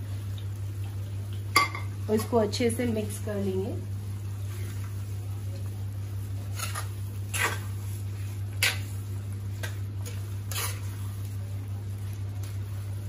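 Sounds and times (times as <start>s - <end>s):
steady low hum: 0.0s - 13.0s
metal spoon scraping pan: 10.5s - 10.9s.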